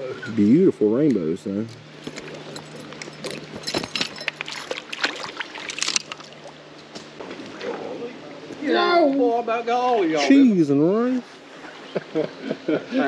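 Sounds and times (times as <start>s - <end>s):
creek water splashing: 1.9s - 8.6s
small splashes and taps: 3.6s - 7.8s.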